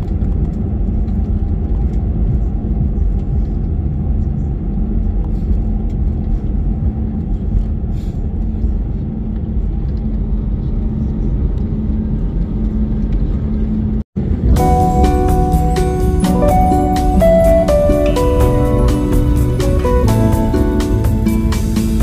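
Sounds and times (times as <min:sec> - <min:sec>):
engines and wheels rumbling: 0:00.0 - 0:22.0
faint hum: 0:00.0 - 0:22.0
music: 0:01.1 - 0:04.6, 0:14.2 - 0:22.0.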